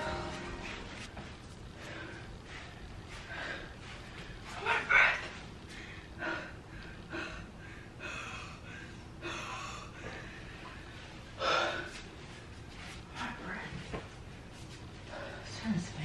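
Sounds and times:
person breathing in puffs: 0:01.7 - 0:04.5.

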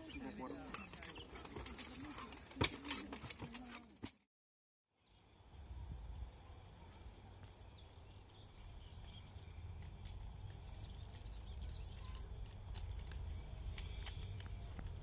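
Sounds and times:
footsteps crunching on ground: 0:06.9 - 0:15.0.

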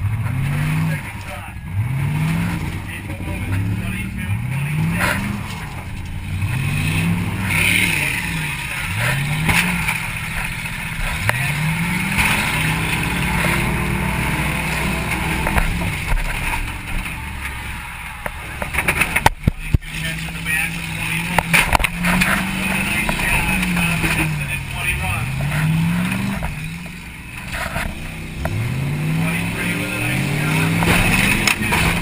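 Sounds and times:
car engine revving: 0:00.0 - 0:32.0
sharp bangs: 0:02.2 - 0:32.0.

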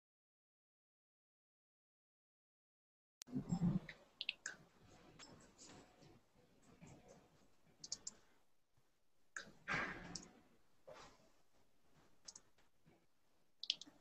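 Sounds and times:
computer mouse clicks: 0:07.8 - 0:08.2, 0:12.2 - 0:12.5, 0:13.6 - 0:14.0.

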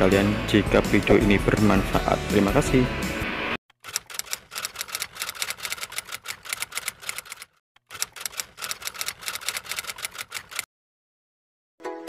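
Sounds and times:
typewriter key clacks: 0:03.9 - 0:10.6.

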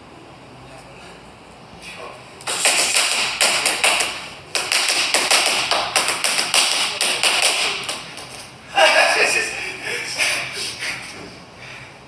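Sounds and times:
boxing gloves hitting focus mitts: 0:02.4 - 0:08.4.

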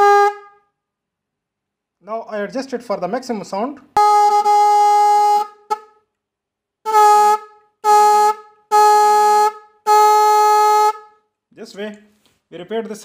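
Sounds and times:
car horn blasts: 0:00.0 - 0:00.7, 0:04.0 - 0:06.0, 0:06.8 - 0:11.2.

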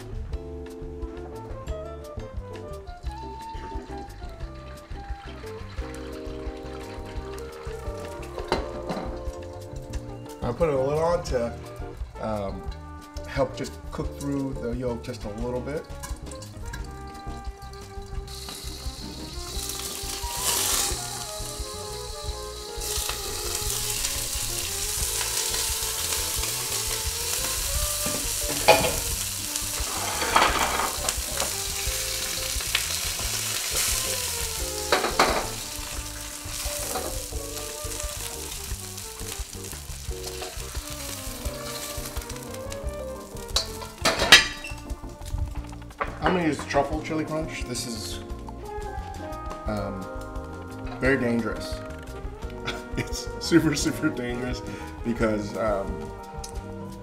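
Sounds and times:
eggs sizzling in a wok: 0:03.0 - 0:10.5, 0:15.4 - 0:46.7
wok knocks: 0:08.3 - 0:09.4, 0:28.0 - 0:29.2, 0:29.8 - 0:31.7, 0:34.8 - 0:35.7, 0:43.5 - 0:46.3.

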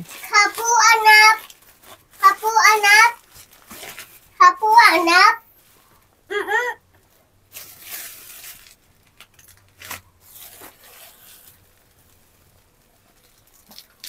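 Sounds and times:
plastic wrapping crinkling and tearing: 0:00.0 - 0:04.4, 0:07.5 - 0:14.0.

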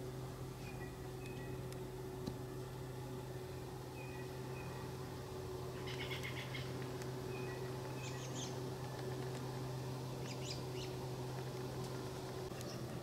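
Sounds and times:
steady low hum: 0:00.0 - 0:13.0
small birds chirping: 0:00.6 - 0:01.8, 0:03.3 - 0:05.0, 0:05.7 - 0:13.0.

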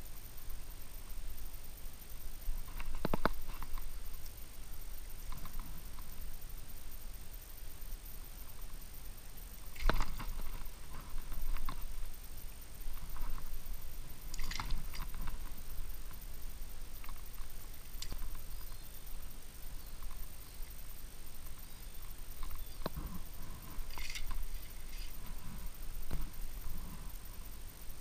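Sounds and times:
low steady rumble: 0:00.0 - 0:28.0
small water splashes: 0:14.4 - 0:15.0.

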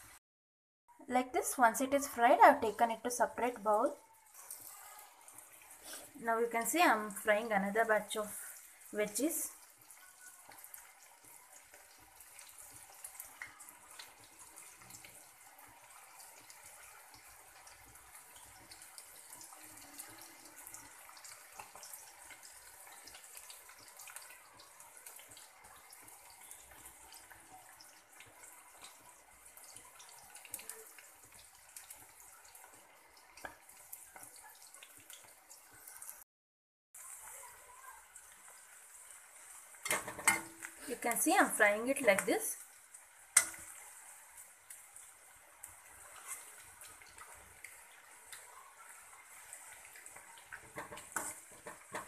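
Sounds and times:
hot oil sizzling in a wok: 0:01.1 - 0:36.2, 0:37.0 - 0:52.0
oil crackles and pops: 0:09.6 - 0:36.2, 0:37.0 - 0:52.0.

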